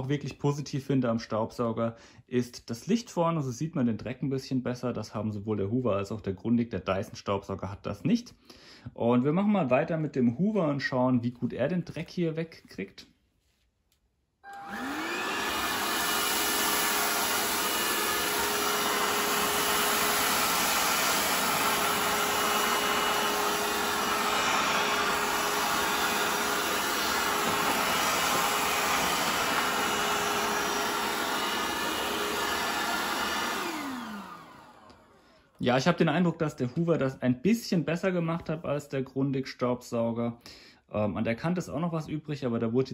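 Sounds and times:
cordless vacuum whining: 0:14.4 - 0:35.6.

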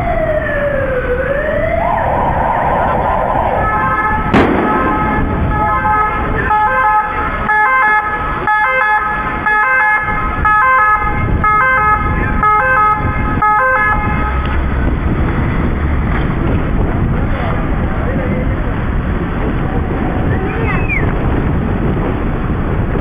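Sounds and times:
low engine rumble: 0:00.0 - 0:08.5, 0:10.1 - 0:23.0
two-tone ambulance siren: 0:00.0 - 0:14.6.

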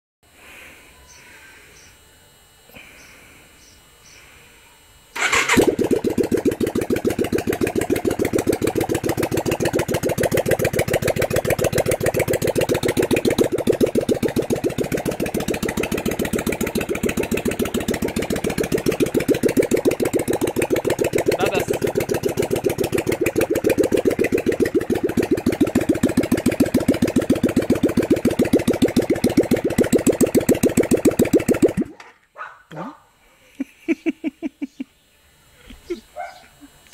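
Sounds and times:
motorcycle engine idling: 0:05.2 - 0:31.9.

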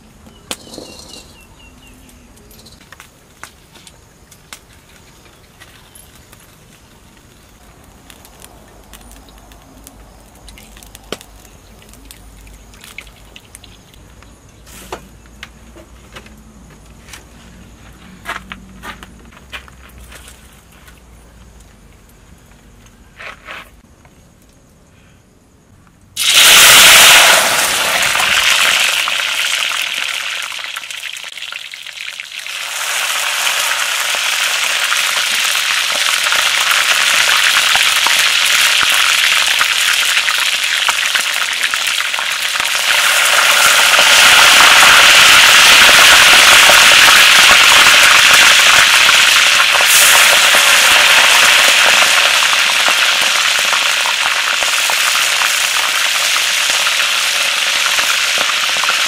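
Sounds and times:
food deep-frying in hot oil: 0:04.2 - 0:14.4, 0:26.2 - 0:59.0.

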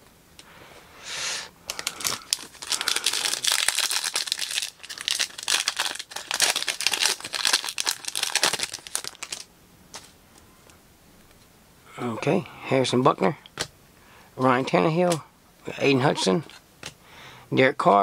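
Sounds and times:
foil wrapper tearing and crinkling: 0:01.7 - 0:09.5.

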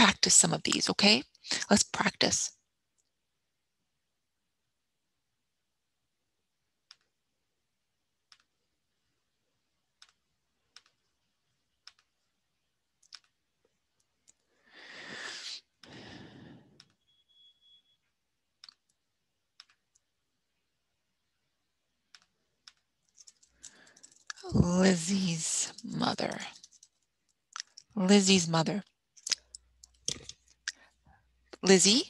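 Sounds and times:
computer mouse clicks: 0:06.8 - 0:07.2, 0:08.2 - 0:08.6, 0:09.9 - 0:11.1, 0:11.7 - 0:12.2, 0:13.0 - 0:13.4, 0:16.8 - 0:17.0, 0:18.6 - 0:20.1, 0:22.1 - 0:24.4.

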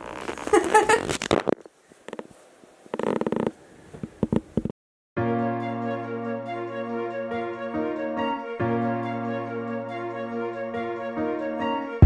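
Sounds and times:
sustained background music: 0:05.2 - 0:12.0.

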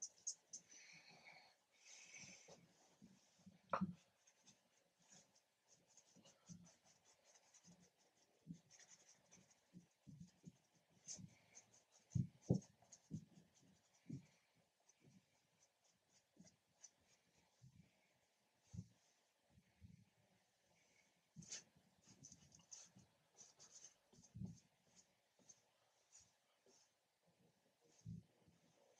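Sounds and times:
paintbrush strokes on canvas: 0:01.8 - 0:18.0, 0:21.4 - 0:27.0.

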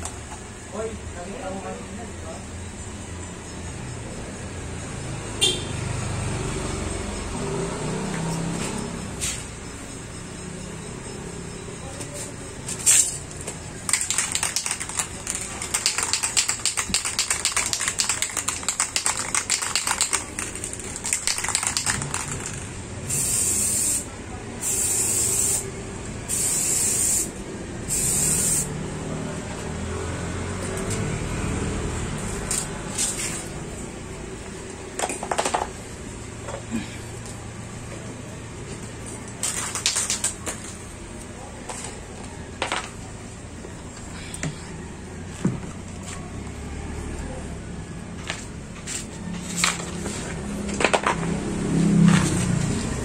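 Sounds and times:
spray can ball rattling: 0:13.8 - 0:24.0, 0:39.3 - 0:40.8
spray hissing from nozzle: 0:23.1 - 0:25.6, 0:27.9 - 0:28.7.

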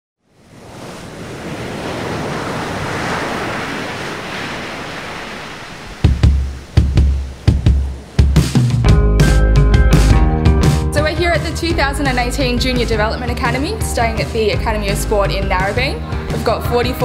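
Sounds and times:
ocean surf washing in: 0:00.2 - 0:11.2
deep drum hits: 0:06.0 - 0:12.3.

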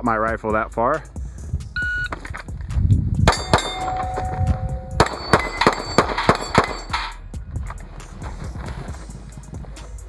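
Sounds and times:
steel targets clanging: 0:03.3 - 0:07.2
rapid gunshots: 0:05.0 - 0:07.1.

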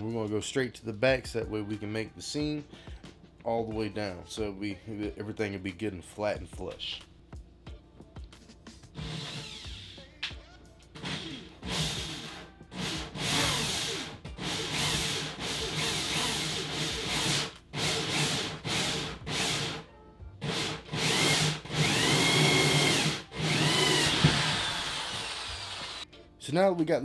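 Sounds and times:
power drill motor whine: 0:20.4 - 0:26.0
hole saw grinding through plastic: 0:20.5 - 0:26.0.

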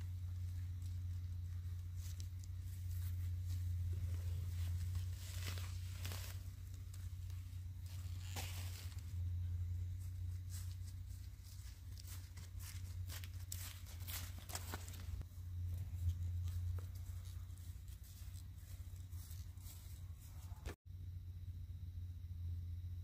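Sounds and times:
rustling from handling: 0:00.0 - 0:15.3
steady low rumble: 0:00.0 - 0:23.0.

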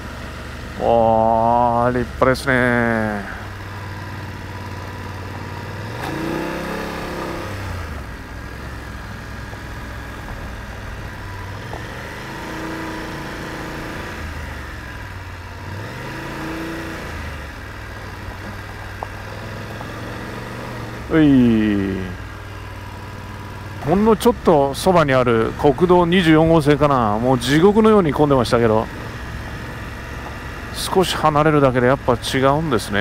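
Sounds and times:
motorcycle engine revving: 0:00.0 - 0:33.0
tyres on gravel: 0:17.4 - 0:33.0.

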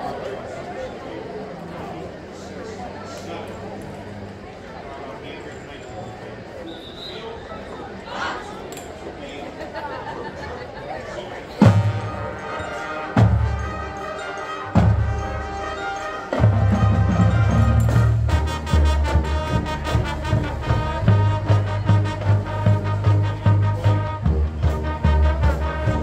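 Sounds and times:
marching band playing: 0:11.5 - 0:26.0.

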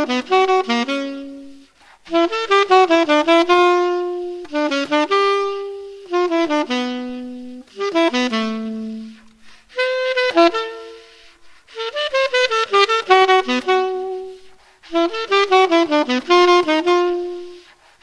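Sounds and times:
saxophone melody: 0:00.0 - 0:18.0
player breathing: 0:09.2 - 0:09.8.

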